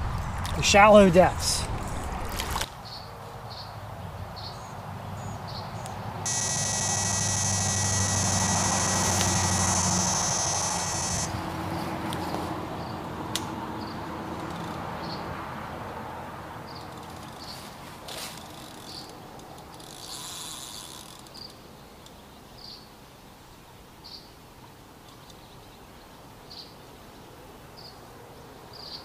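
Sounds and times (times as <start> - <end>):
bite alarm high buzz: 6.2 - 11.6.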